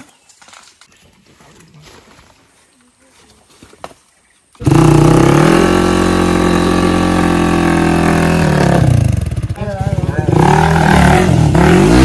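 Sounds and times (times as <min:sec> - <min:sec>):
motorcycle engine revving: 0:04.6 - 0:12.0.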